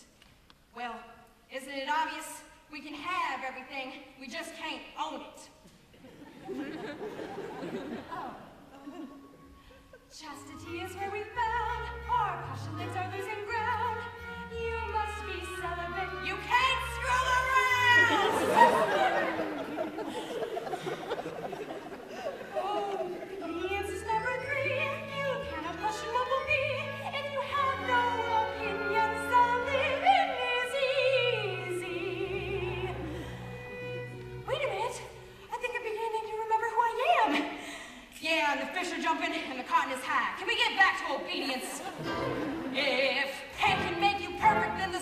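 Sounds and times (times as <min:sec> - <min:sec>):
instrumental accompaniment: 0:23.3 - 0:35.4, 0:41.9 - 0:43.0.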